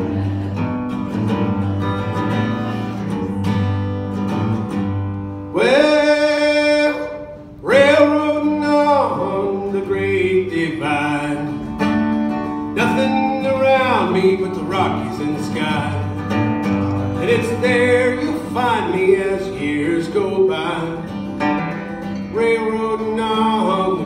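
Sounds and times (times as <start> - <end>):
acoustic guitar strumming: 0.0 - 24.0
man singing: 5.5 - 12.0, 12.7 - 16.4, 17.1 - 21.4, 22.0 - 24.0.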